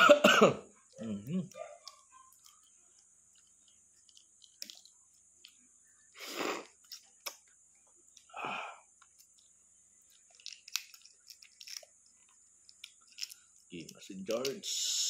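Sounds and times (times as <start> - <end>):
heavy breaths: 8.3 - 8.9
eggshell clicks: 9.0 - 14.7.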